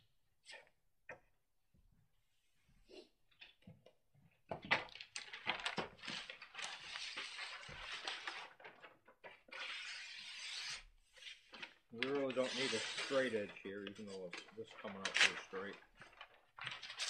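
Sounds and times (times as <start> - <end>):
paper rustling and clicks: 4.5 - 10.0, 11.2 - 17.0
knife slicing through paper: 6.1 - 8.6, 9.5 - 14.4.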